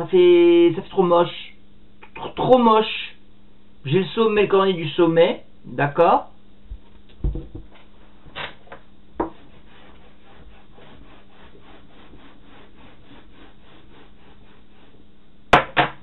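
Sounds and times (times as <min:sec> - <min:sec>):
whiteboard being wiped: 0:09.2 - 0:15.0.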